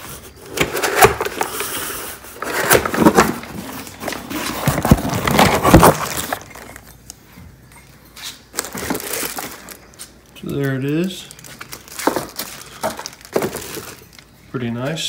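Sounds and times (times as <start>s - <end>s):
cardboard box scraping and rustling: 0.8s - 6.7s.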